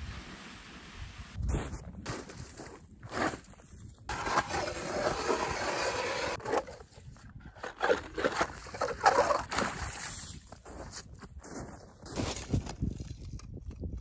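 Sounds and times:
ice auger grinding through ice: 4.1 - 9.9.

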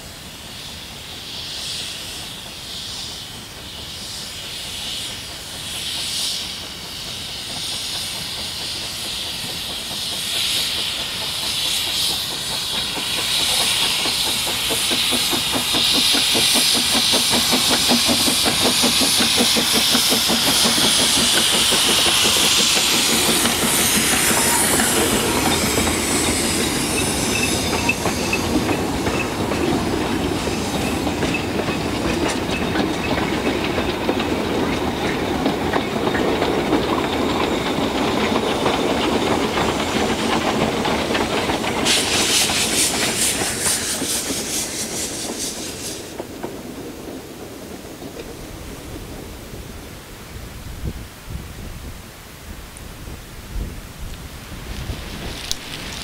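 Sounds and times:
steam chuffing with quick beats: 0.0 - 49.8
steam locomotive hissing: 0.0 - 56.0
coaches clicking over rail joints: 5.8 - 49.3.

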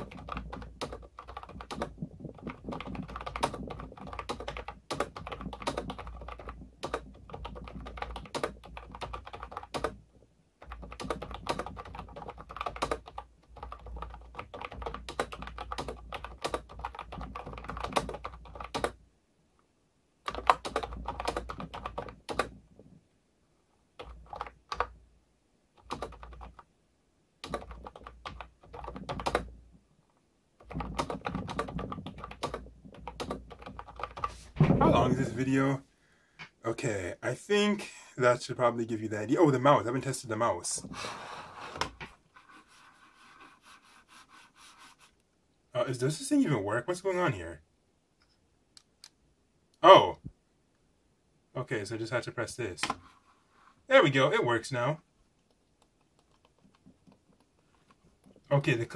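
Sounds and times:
fast keyboard typing: 0.0 - 10.0, 10.6 - 19.0, 20.2 - 22.6, 24.0 - 25.0, 25.8 - 26.7, 27.4 - 29.6, 30.6 - 35.2, 55.4 - 58.9.

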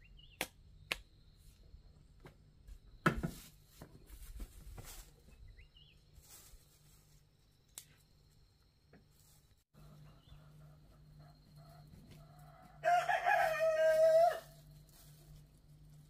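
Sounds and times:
bird chirping: 0.0 - 0.4, 5.2 - 6.1, 9.8 - 11.9.

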